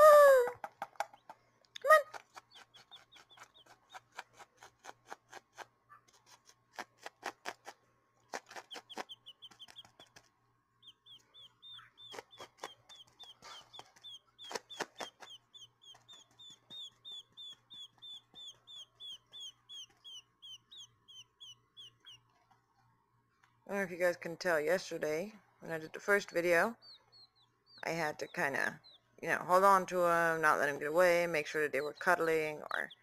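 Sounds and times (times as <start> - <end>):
sharp clicks and taps: 0.6 - 10.3
quail chicks peeping: 0.7 - 22.6, 25.7 - 33.0.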